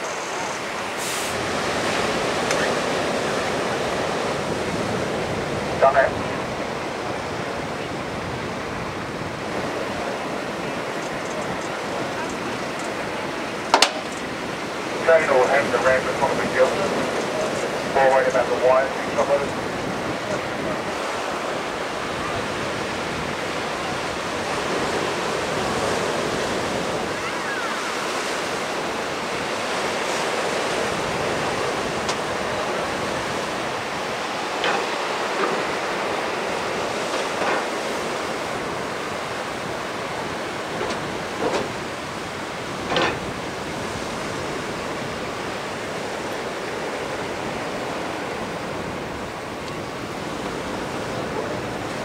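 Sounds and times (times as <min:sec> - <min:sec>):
surf washing over shallows: 0:00.0 - 0:52.0.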